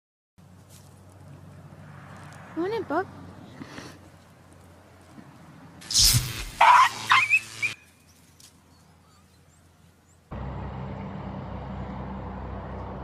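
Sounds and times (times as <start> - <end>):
dog yelping in pain: 6.6 - 7.5.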